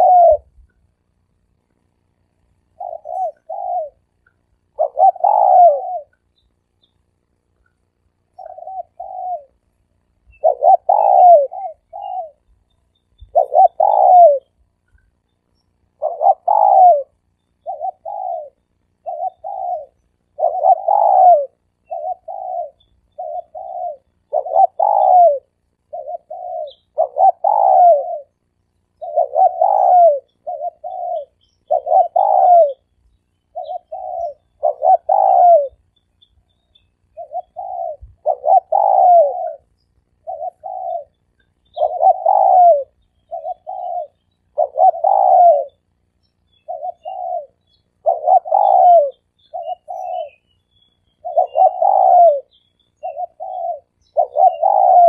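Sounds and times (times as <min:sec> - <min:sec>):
dove cooing: 0:00.0 - 0:00.9, 0:02.2 - 0:06.8, 0:08.1 - 0:12.6, 0:13.2 - 0:15.2, 0:15.8 - 0:36.0, 0:36.7 - 0:50.5, 0:51.1 - 0:55.0.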